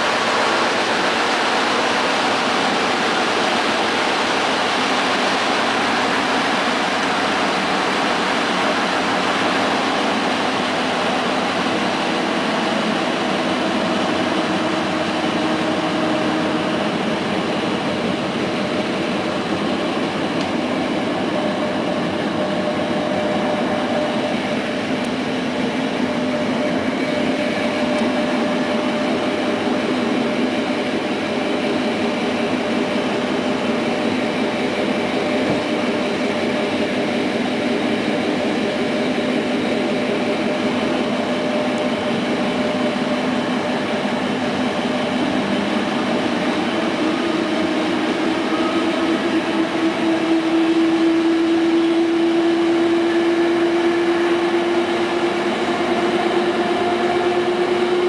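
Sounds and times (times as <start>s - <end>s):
train wheels rumbling on rails: 0.0s - 58.0s
humming tone: 44.7s - 58.0s.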